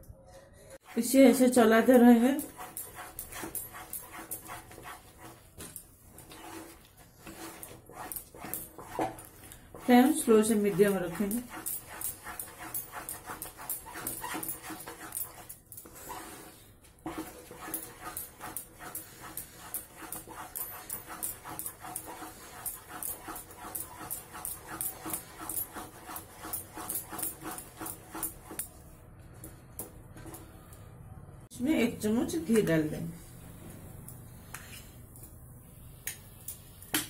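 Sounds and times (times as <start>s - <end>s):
spatula scraping metal pan: 6.2s - 28.6s.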